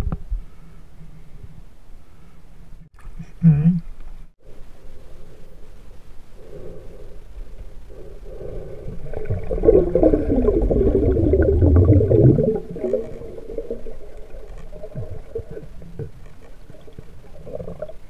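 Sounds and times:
underwater rushing and bubbling: 7.8 - 18.0
underwater crackling: 8.0 - 18.0.

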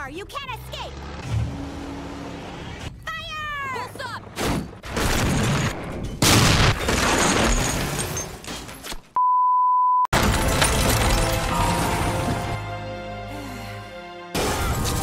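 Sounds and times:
tank cannon blast: 4.4 - 8.0.

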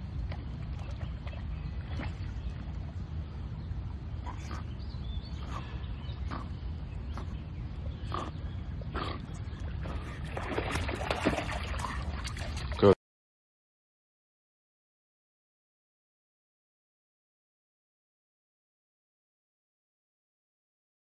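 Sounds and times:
dog swimming in water: 0.0 - 13.0
dog breathing: 4.2 - 7.4
splashing through shallows: 9.0 - 13.0.

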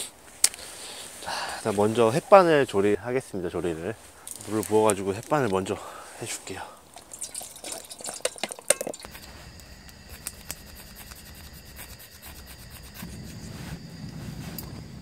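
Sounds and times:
water pouring into metal pot: 6.9 - 9.1.

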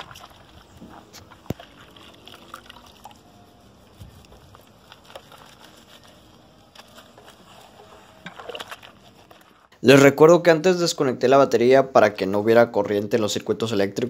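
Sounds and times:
soapy water sloshing: 0.0 - 9.8.

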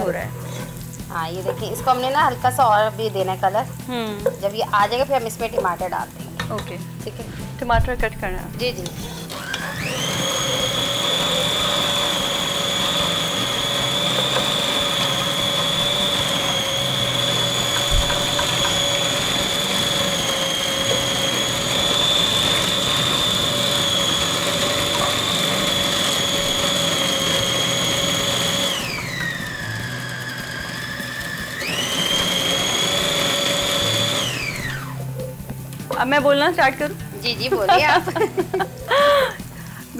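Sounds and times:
food chopper motor whining: 8.5 - 39.9.

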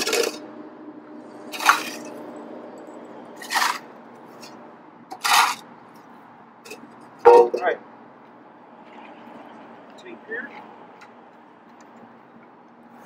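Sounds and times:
shovel scraping into dirt: 3.4 - 5.6.

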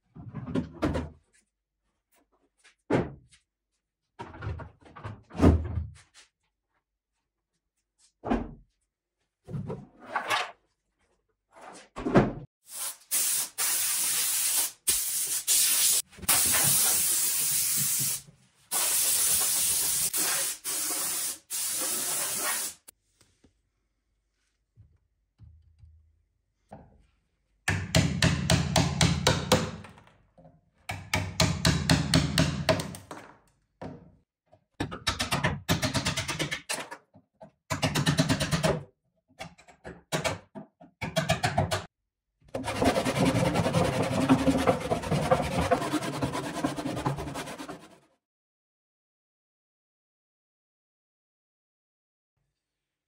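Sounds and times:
hammer striking chisel: 27.7 - 29.9, 30.9 - 33.0.

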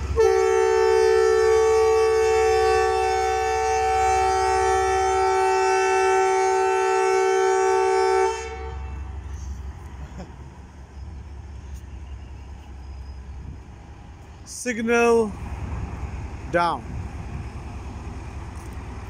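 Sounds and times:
locomotive air horn blast: 0.0 - 9.5.

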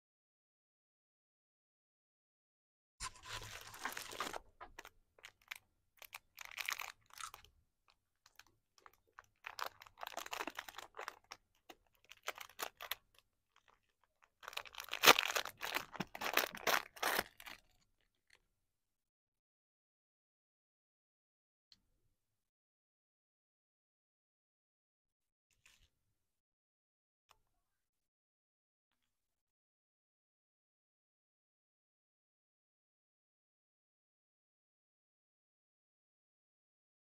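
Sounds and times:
plastic wrapper crinkling: 3.0 - 7.5, 8.2 - 17.7.

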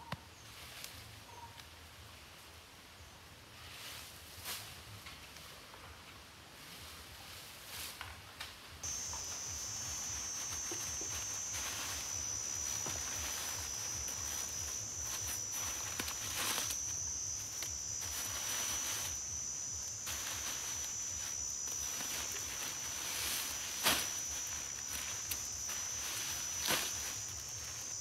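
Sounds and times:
dry leaf thatch rustling: 8.8 - 28.0
high-pitched insect drone: 8.8 - 28.0.

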